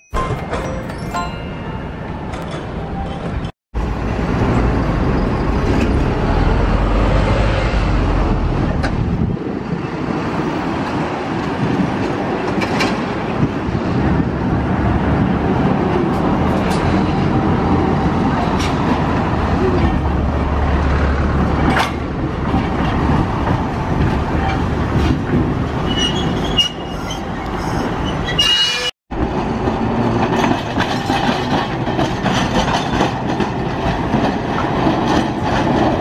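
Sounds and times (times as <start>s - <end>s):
streetcar rolling on rails: 0.2s - 36.0s
vehicles passing: 0.6s - 28.3s
low traffic rumble: 1.7s - 28.4s.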